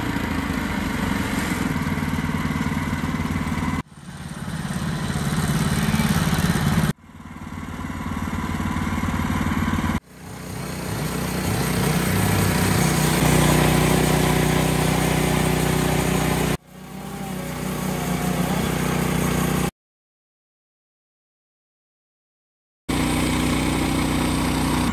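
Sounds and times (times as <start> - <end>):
petrol engine running: 0.0 - 19.7, 22.9 - 24.9
band saw cutting wood: 9.0 - 19.7, 22.9 - 24.9.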